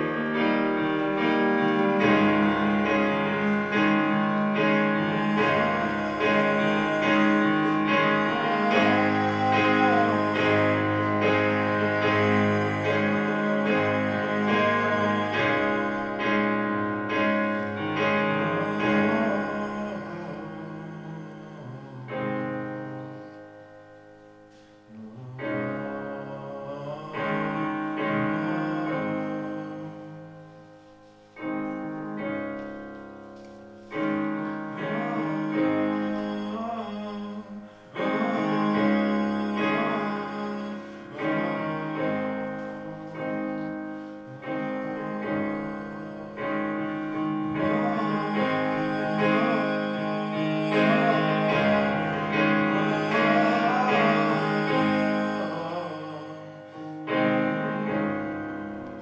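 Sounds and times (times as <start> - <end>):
electronic keyboard chords: 0.0 - 21.4.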